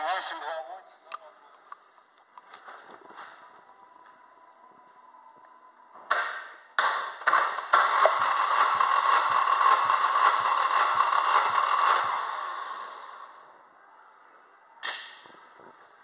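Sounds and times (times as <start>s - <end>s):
car engine cranking by starter: 7.1s - 13.4s.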